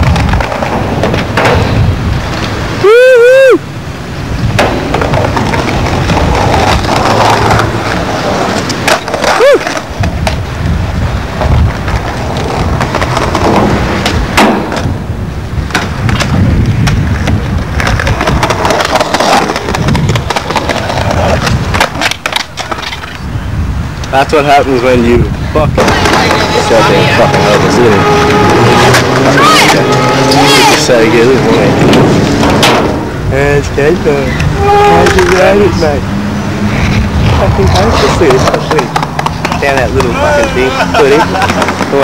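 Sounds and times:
skateboards clacking on ground: 0.0 - 2.6, 4.4 - 15.0, 15.6 - 23.2, 25.6 - 36.0, 36.8 - 42.0
skateboards rolling on concrete: 0.0 - 42.0
person whooping: 2.8 - 3.7, 9.3 - 9.8.

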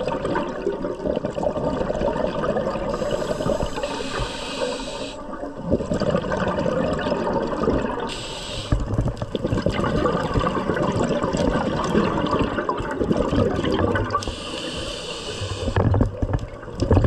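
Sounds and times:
gurgling exhaled bubbles: 0.0 - 17.0
regulator hissing inhale: 2.9 - 5.4, 8.1 - 8.9, 14.2 - 15.8.

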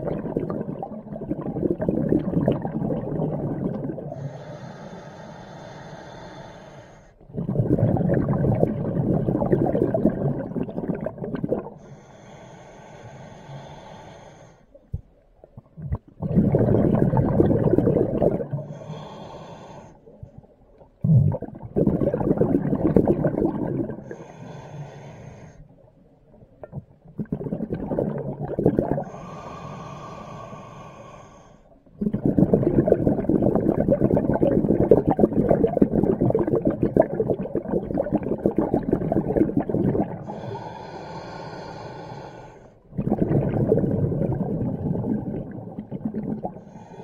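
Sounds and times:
exhaled bubbles rumbling underwater: 0.0 - 4.5, 7.2 - 11.9, 14.7 - 19.2, 20.0 - 24.4, 25.6 - 29.3, 31.7 - 40.8, 42.8 - 47.0
regulator hissing on inhale: 4.1 - 7.2, 11.8 - 14.8, 18.6 - 20.1, 24.0 - 25.7, 29.0 - 31.7, 40.2 - 42.8, 46.6 - 47.0.

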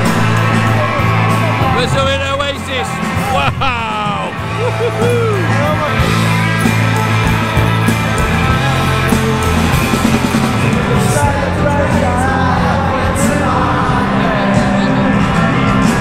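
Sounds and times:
bass guitar: 0.0 - 16.0
electric guitars: 0.0 - 16.0
person singing: 8.4 - 16.0.

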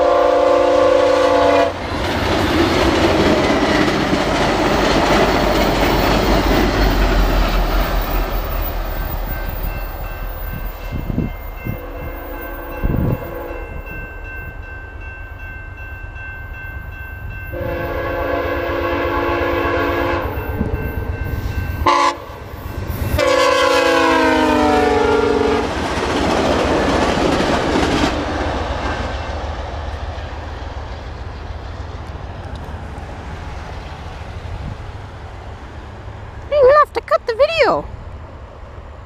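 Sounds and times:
locomotive horn blasts: 0.0 - 1.8, 11.6 - 13.9, 17.5 - 20.7, 21.8 - 22.4, 23.2 - 25.7
train cars rumbling: 0.0 - 39.0
wheels clickety-clack: 1.8 - 11.0, 25.6 - 33.0.

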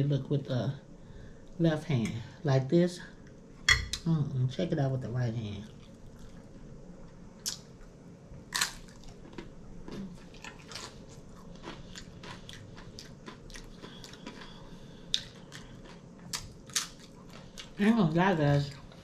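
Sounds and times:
crunching tortilla chips: 8.5 - 17.8.

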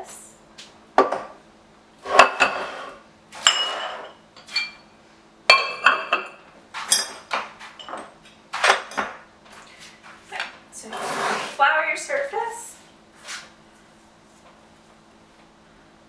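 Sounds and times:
dishes and spoons clinking: 3.4 - 4.9, 5.5 - 9.2.

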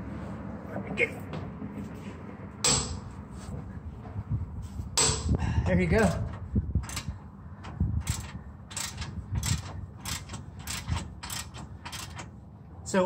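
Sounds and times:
hand ratchet clicking: 6.8 - 12.3.

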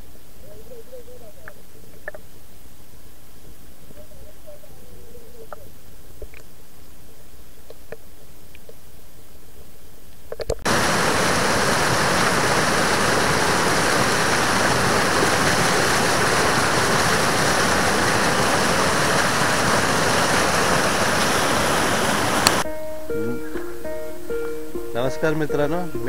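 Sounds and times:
faint underwater clicks: 1.2 - 2.3, 5.0 - 6.5, 21.0 - 22.6
waterfall splashing over boulders: 10.6 - 22.6.

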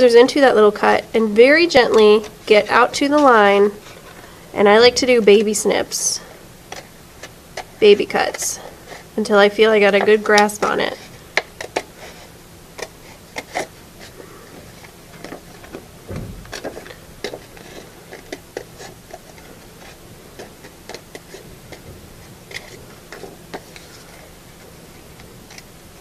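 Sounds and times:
low bump: 16.0 - 17.3.

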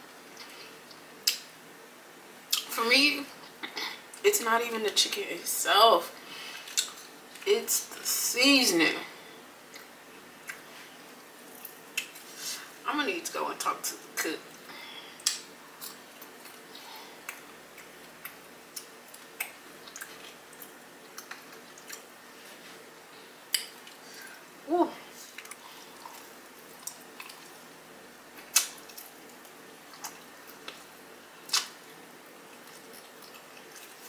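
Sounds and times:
faint steady hum: 0.0 - 34.0
wet chewing and sucking sounds: 15.2 - 22.1, 25.3 - 27.6, 32.4 - 34.0.

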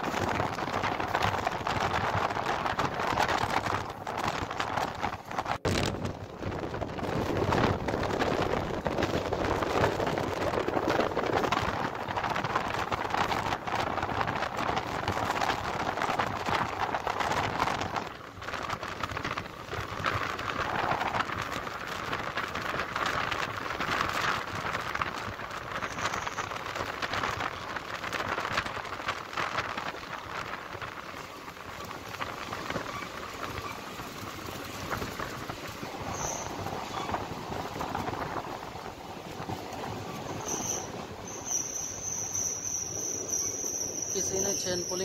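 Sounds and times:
rush of wind: 0.0 - 45.0
train wheels on rails: 0.0 - 45.0.

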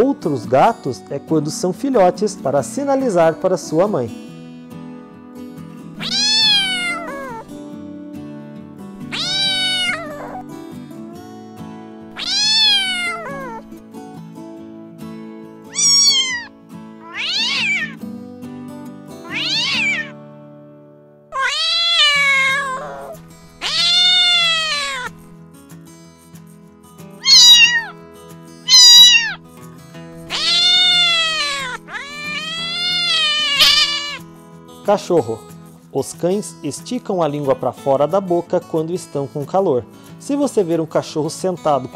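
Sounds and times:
soft background music: 0.0 - 20.7, 21.4 - 41.9
cats meowing: 6.0 - 7.4, 9.0 - 13.7, 15.7 - 18.0, 19.2 - 20.2, 21.3 - 25.2, 27.2 - 28.0, 28.7 - 29.4, 30.3 - 34.2.

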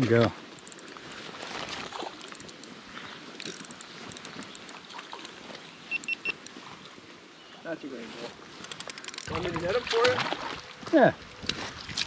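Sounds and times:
creek water running: 0.0 - 12.0
faint ticks: 0.5 - 1.2, 3.4 - 5.4.

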